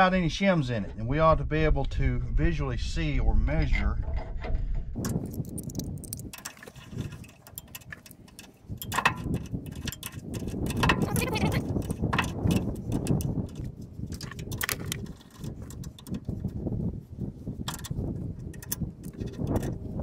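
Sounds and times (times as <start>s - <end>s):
ratchet wrench clicking: 5.1s - 16.4s, 17.7s - 19.7s.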